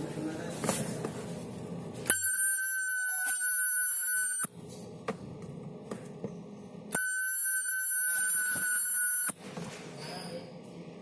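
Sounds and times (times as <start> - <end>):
ultrasonic welder whine: 1.4 - 11.0.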